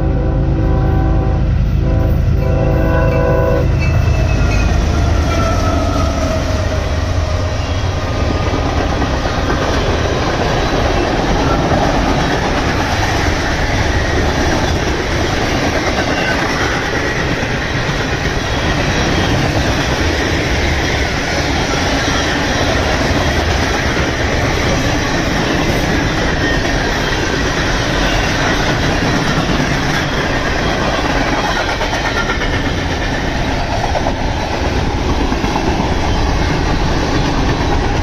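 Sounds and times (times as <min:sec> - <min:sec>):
train horn chord: 0:00.0 - 0:04.1
train rumbling past: 0:00.0 - 0:38.0.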